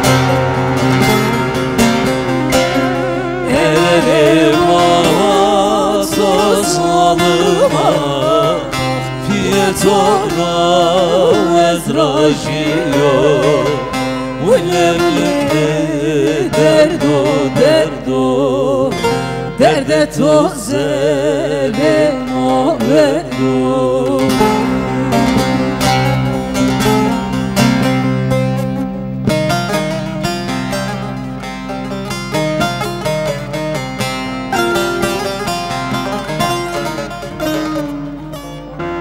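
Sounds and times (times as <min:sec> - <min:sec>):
plucked long-necked lutes: 0:00.0 - 0:39.0
person singing with vibrato: 0:02.0 - 0:27.4.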